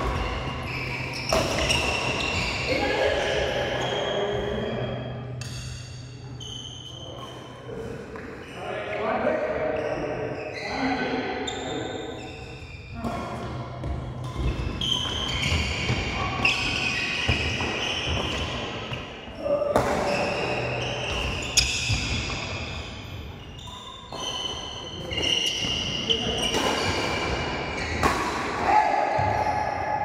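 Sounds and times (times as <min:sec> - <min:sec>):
shoes squeaking on court: 0:00.0 - 0:08.7, 0:09.8 - 0:19.1, 0:19.8 - 0:28.2
racket hitting shuttlecock: 0:26.4 - 0:28.7.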